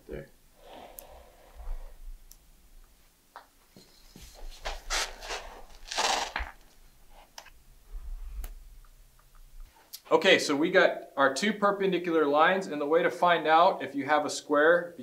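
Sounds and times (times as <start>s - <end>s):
scratchy scrapes and rustles: 3.8s - 7.4s.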